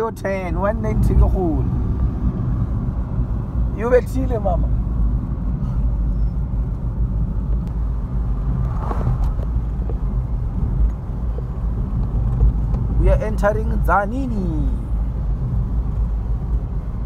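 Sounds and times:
car engine and tyre rumble: 0:00.0 - 0:17.0.

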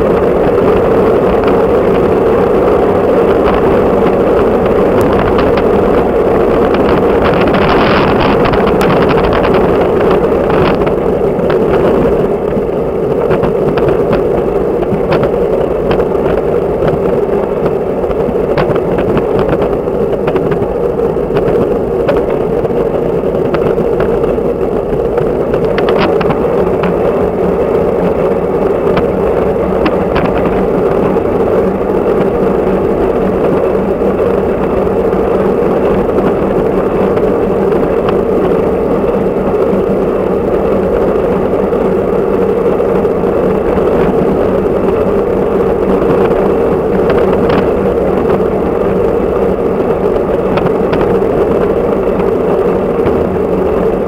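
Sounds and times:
bike tyre rumble on asphalt: 0:00.0 - 0:54.0
loud wind: 0:00.0 - 0:54.0
small ticks and rattles: 0:02.8 - 0:27.1.

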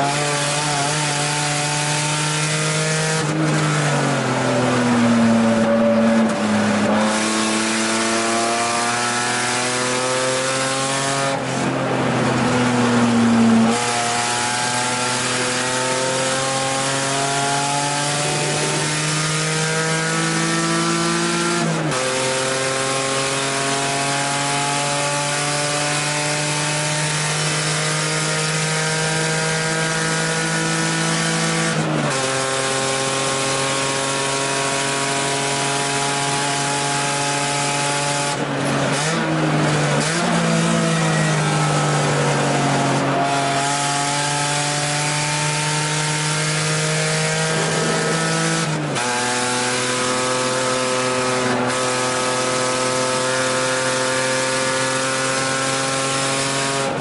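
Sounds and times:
tyre and road noise: 0:00.0 - 0:22.1
car engine accelerating: 0:00.0 - 0:57.0.

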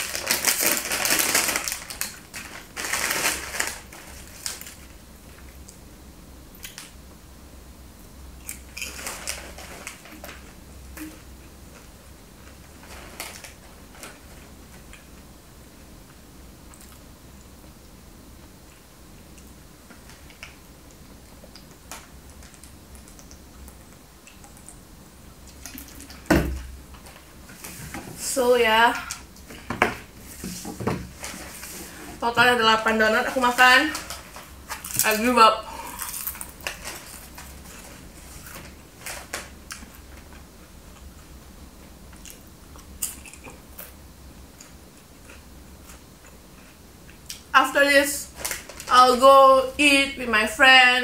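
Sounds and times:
crunchy snack chewing: 0:35.8 - 0:38.6.

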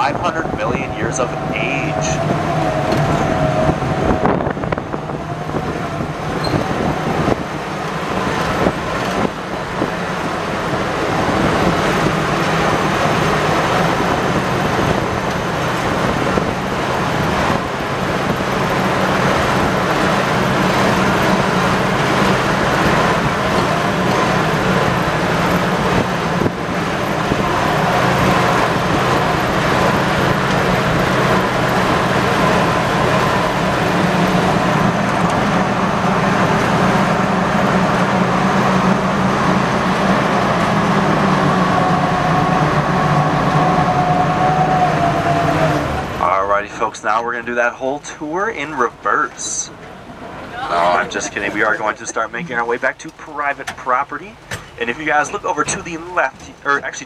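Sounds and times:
engine droning: 0:00.0 - 0:57.0
rushing water wash: 0:00.0 - 0:57.0.

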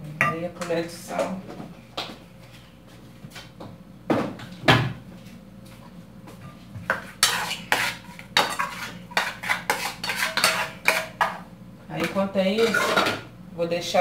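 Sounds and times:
spoon scraping against a bowl: 0:06.9 - 0:11.4, 0:12.0 - 0:13.1.

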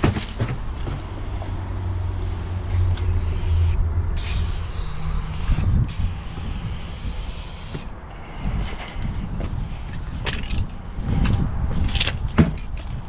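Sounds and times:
steady low hum: 0:01.0 - 0:10.2
aerosol spray can hissing: 0:02.6 - 0:07.9.

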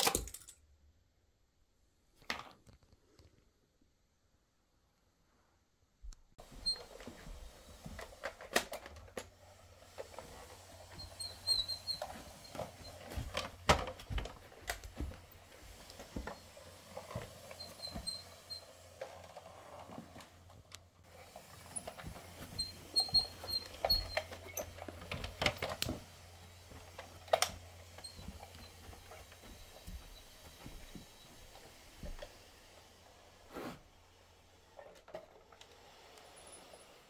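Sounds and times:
plastic toy clicking and knocking: 0:00.0 - 0:00.6.

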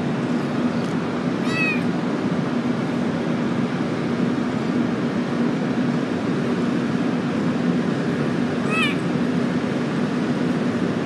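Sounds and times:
low background hum: 0:00.0 - 0:11.0
kitten meowing: 0:01.4 - 0:01.9, 0:08.6 - 0:09.1.

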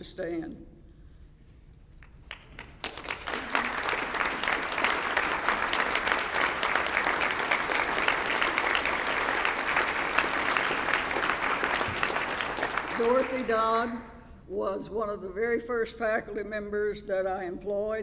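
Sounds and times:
audience applauding: 0:02.2 - 0:13.8.

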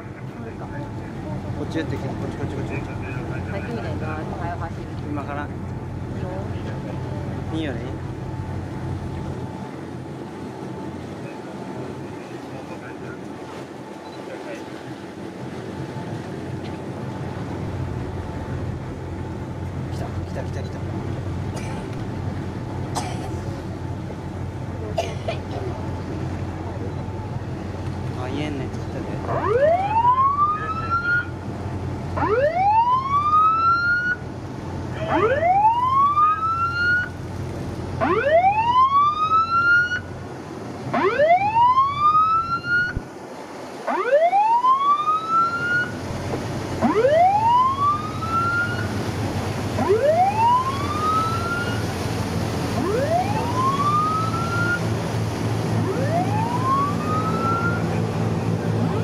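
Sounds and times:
low drone of engines: 0:00.0 - 0:59.0
water: 0:00.0 - 0:59.0
boat siren whooping: 0:29.2 - 0:59.0.

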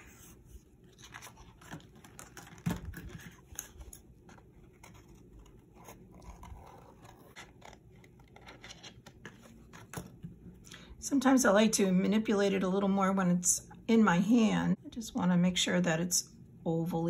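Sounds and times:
paper rustling: 0:00.0 - 0:10.3.

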